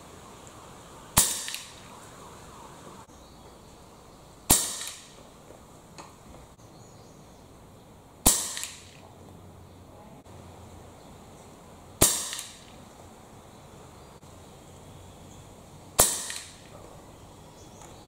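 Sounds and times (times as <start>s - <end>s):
air rifle shots: 1.1s - 1.9s, 4.5s - 5.3s, 8.2s - 9.0s, 12.0s - 12.8s, 16.0s - 16.8s.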